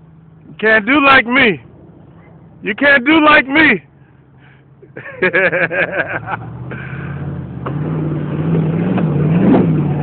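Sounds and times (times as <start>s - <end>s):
engine revving under load: 6.0s - 10.0s.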